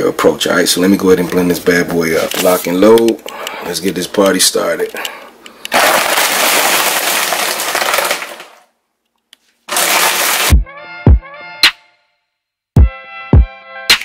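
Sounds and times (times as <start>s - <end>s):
blender running: 9.7s - 10.6s
hip hop beat with booming kicks: 10.5s - 11.8s, 12.8s - 14.0s.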